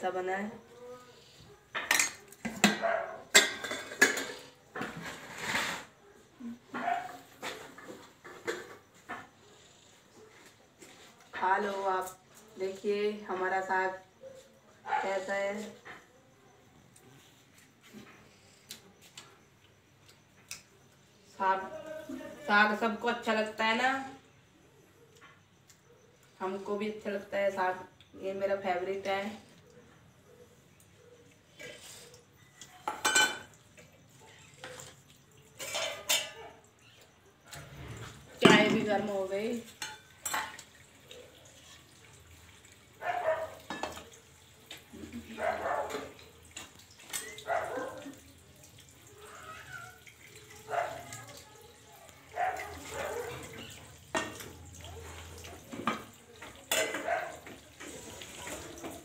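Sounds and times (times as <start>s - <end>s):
steel pots clanking on concrete: 1.7s - 6.0s, 32.7s - 33.8s, 35.5s - 36.6s, 37.8s - 49.6s, 52.4s - 59.0s.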